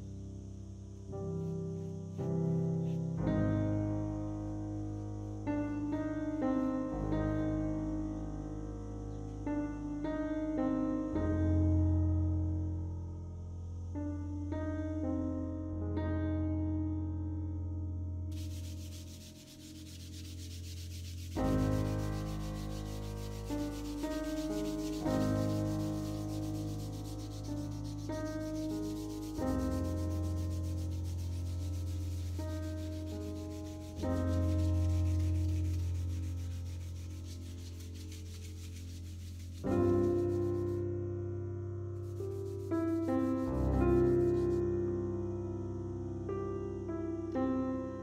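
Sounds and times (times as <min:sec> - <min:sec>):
sandpaper scrubbing wood: 0:18.3 - 0:40.8, 0:42.0 - 0:44.6.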